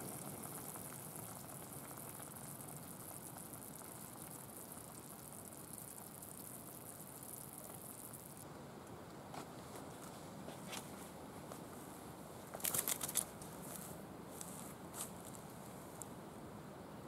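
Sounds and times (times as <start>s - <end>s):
broth bubbling in pan: 0.0s - 8.4s
camp stove hiss: 0.0s - 8.4s.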